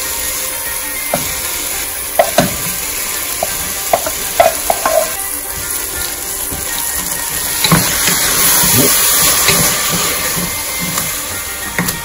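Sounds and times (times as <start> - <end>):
food sizzling in a pot: 0.0 - 12.0
bowl and spatula knocking on pot: 2.2 - 2.6, 3.4 - 5.1.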